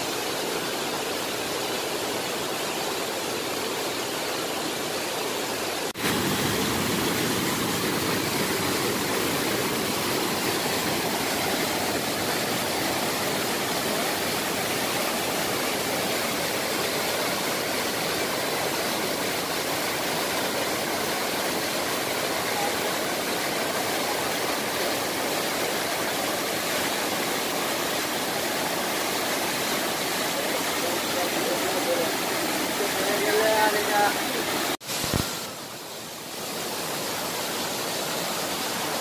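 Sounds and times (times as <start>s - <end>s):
waterfall rushing: 0.0s - 39.0s.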